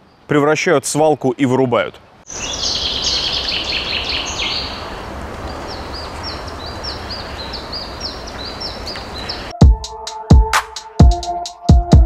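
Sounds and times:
low background noise: 0.0 - 9.5
small birds singing: 0.0 - 9.6.

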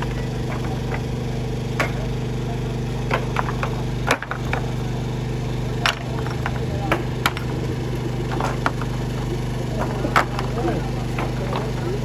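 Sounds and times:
engine running: 0.0 - 12.0
loose stones knocking together: 3.1 - 4.7, 5.8 - 12.0.

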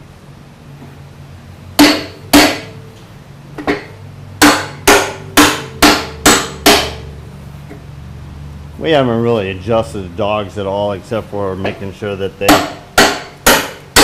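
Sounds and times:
hammer striking metal: 1.8 - 2.8, 3.6 - 7.1, 12.4 - 14.0.

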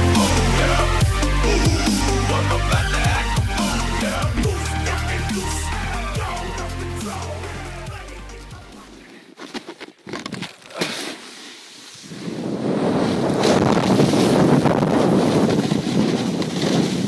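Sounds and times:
electronic dance music: 0.0 - 9.0
wind on microphone: 12.1 - 17.0.

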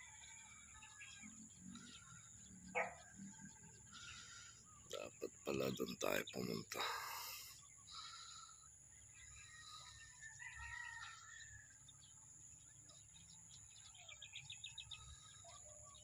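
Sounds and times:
birds chirping: 0.0 - 16.0
ticking bird calls: 3.9 - 8.5.

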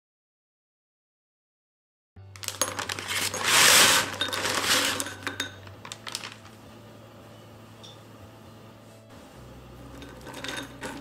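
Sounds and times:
bread cubes clattering into bowl: 2.4 - 6.4.

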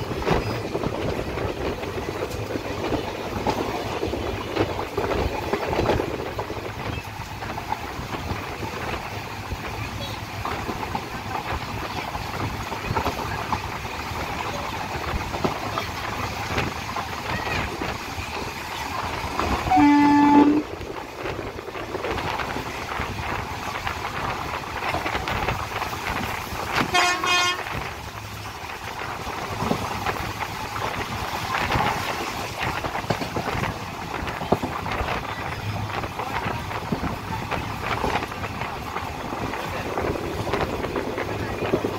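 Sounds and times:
train rolling and rattling: 0.0 - 41.9
loud train horn: 19.6 - 20.8, 26.8 - 27.8
faint high horn: 19.7 - 20.7, 26.9 - 27.7.

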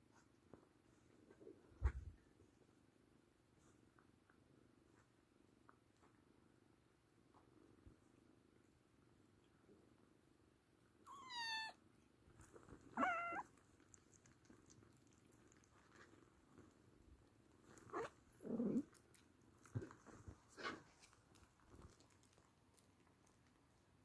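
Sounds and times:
kitten mewing: 11.1 - 11.8, 12.9 - 13.5
cat purring: 12.2 - 24.0.

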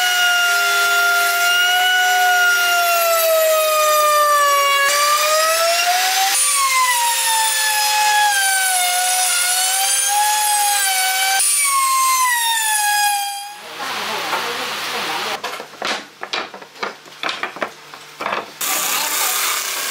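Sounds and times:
wood router whining: 0.0 - 13.7, 18.6 - 19.9.

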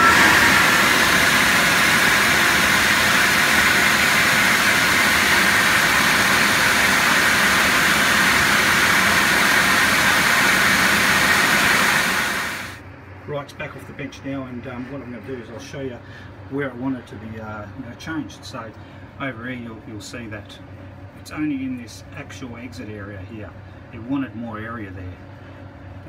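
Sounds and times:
air flow bench rushing air: 0.0 - 12.8.

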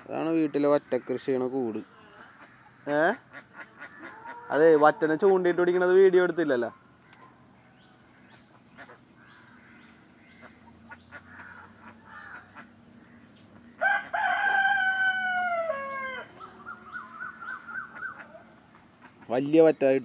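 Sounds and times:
rooster crowing: 4.0 - 5.3, 13.8 - 18.2
faint bird chirps: 16.3 - 18.6.

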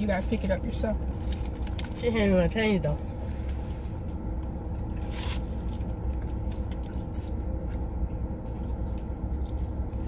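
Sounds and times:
steady low hum: 0.0 - 10.0
person chewing food: 4.0 - 10.0.

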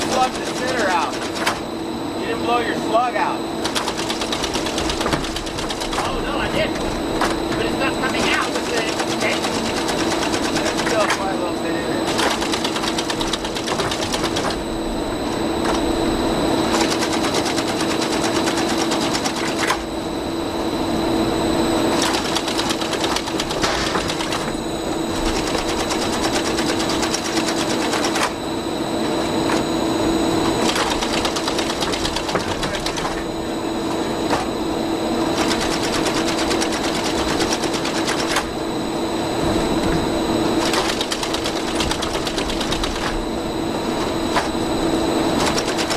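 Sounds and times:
fast mechanical clatter: 0.0 - 1.7, 3.6 - 7.4, 8.1 - 11.3, 12.0 - 14.7, 16.6 - 19.9, 21.9 - 28.4, 30.5 - 33.4, 35.3 - 38.6, 40.6 - 43.3, 45.3 - 45.9
motor hum: 0.0 - 45.9.

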